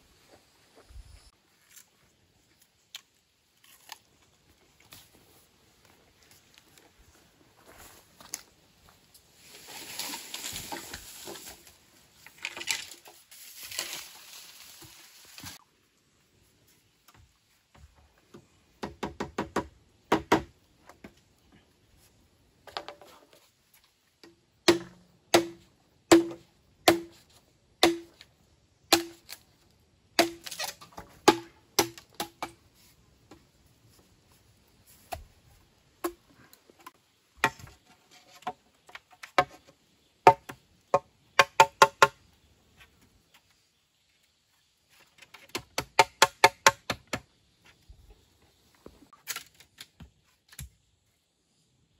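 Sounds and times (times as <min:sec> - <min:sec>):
machete chopping bamboo: 0:24.6 - 0:27.2, 0:27.8 - 0:28.2, 0:28.9 - 0:29.4, 0:30.2 - 0:32.6, 0:40.3 - 0:42.2, 0:45.4 - 0:47.3.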